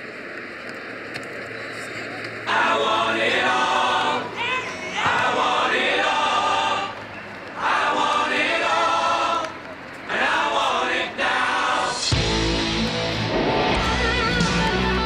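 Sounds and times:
choir singing: 2.5s - 12.7s
band with electric guitar: 12.0s - 15.0s.

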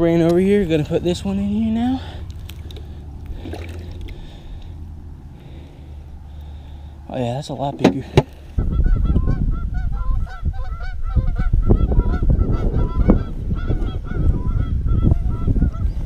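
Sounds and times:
wind rumble on microphone: 7.8s - 16.0s
geese honking: 8.5s - 16.0s.

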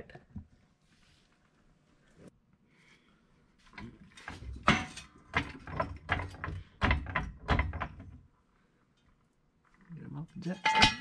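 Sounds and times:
floor jack clunking and creaking: 3.8s - 8.2s.

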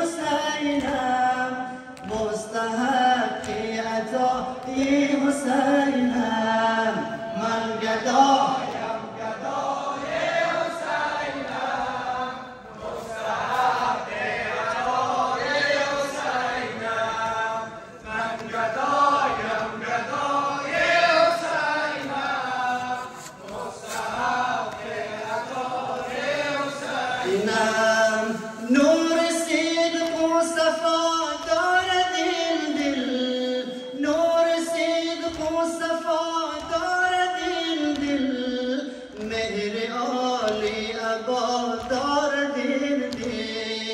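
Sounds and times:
men chanting a lament: 0.0s - 43.9s.

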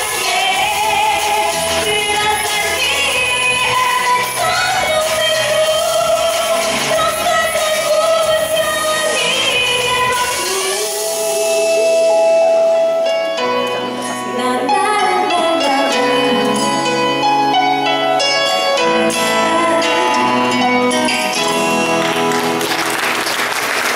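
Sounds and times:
woman singing into microphone: 0.0s - 12.9s, 13.8s - 17.6s, 18.9s - 21.7s
recorded backing track: 0.0s - 23.9s
audience applause: 21.4s - 23.9s.

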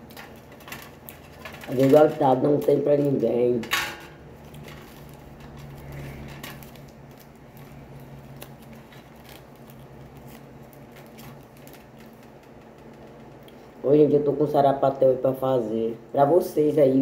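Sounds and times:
cracker crumbling on metal plate: 0.0s - 13.5s
steady low hum: 0.0s - 17.0s.

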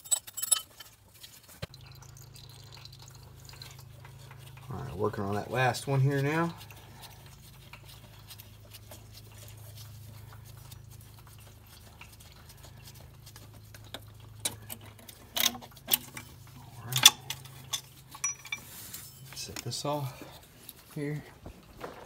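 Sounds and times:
sharp metal clinks: 16.9s - 19.4s.

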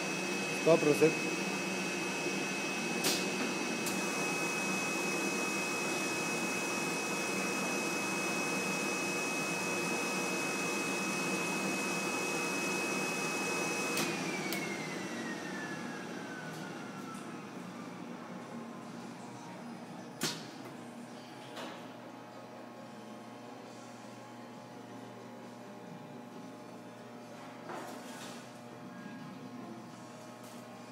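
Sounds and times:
vacuum blower whining: 0.0s - 18.6s.

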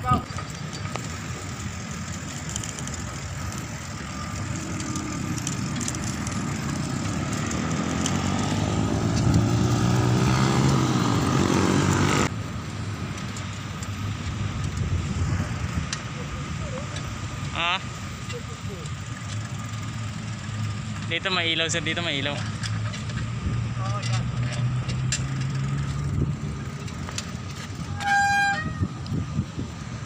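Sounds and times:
motor vehicle engine: 0.0s - 30.0s
traffic noise: 0.0s - 30.0s
wind noise: 3.5s - 17.5s, 25.8s - 30.0s.

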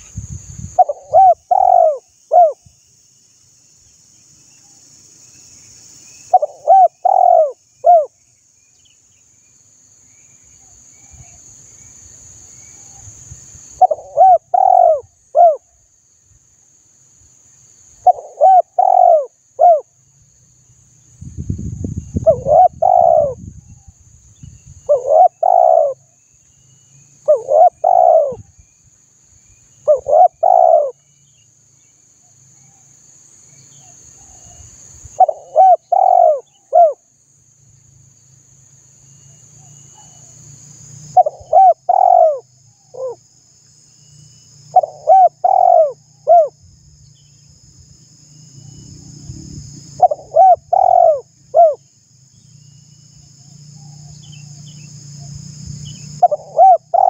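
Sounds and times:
dove cooing: 0.8s - 2.6s, 6.3s - 8.1s, 13.8s - 15.6s, 18.0s - 19.9s, 22.2s - 23.4s, 24.9s - 26.0s, 27.3s - 28.4s, 29.9s - 31.0s, 35.2s - 37.0s, 41.2s - 43.2s, 44.8s - 46.6s, 50.0s - 51.8s, 56.2s - 57.0s.

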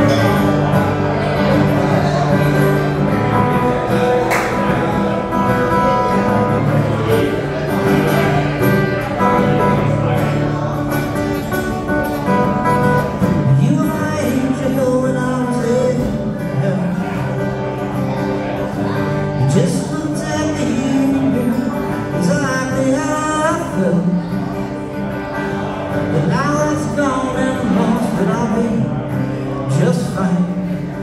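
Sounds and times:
acoustic guitar strumming: 0.0s - 31.0s
man singing into microphone: 13.3s - 17.7s, 19.0s - 24.7s, 26.0s - 31.0s.

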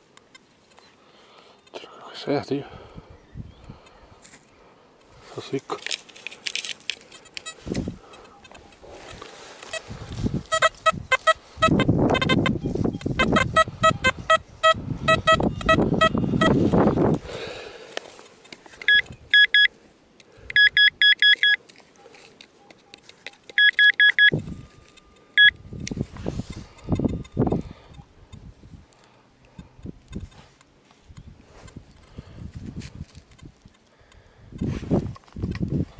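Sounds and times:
metal detector beeps: 7.2s - 16.6s, 18.8s - 19.7s, 20.5s - 25.6s.

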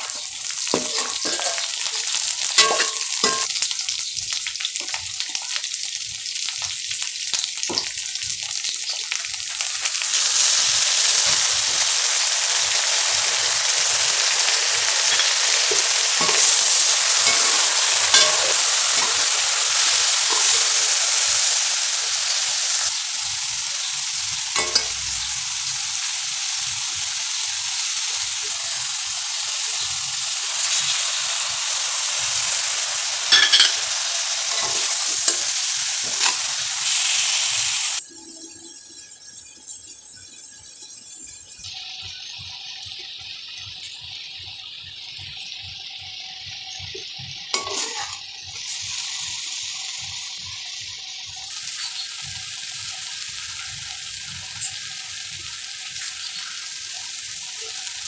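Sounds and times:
metal spatula scraping a pan: 0.0s - 3.5s, 14.2s - 22.9s, 33.3s - 37.2s, 47.6s - 48.3s
vegetables sizzling in hot oil: 0.0s - 58.0s.

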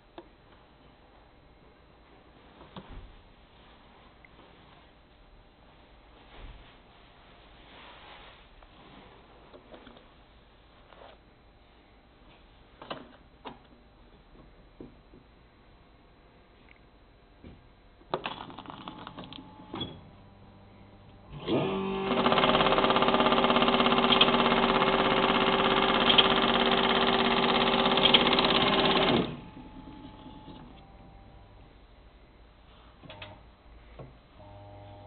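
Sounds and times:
paper counting machine rattling: 21.9s - 30.1s.

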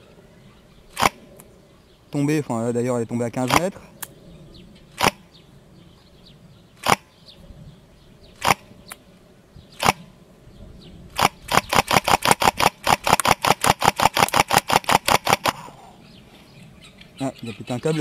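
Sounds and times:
airsoft rifle shots: 0.9s - 1.3s, 3.4s - 3.7s, 5.0s - 5.3s, 6.8s - 7.1s, 8.4s - 8.7s, 9.8s - 10.1s, 11.1s - 15.7s.

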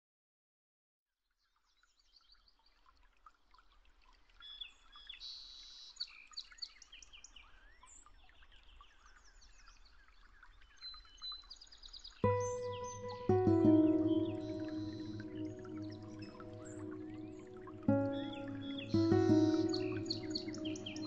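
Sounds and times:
small birds chirping: 8.5s - 21.0s.

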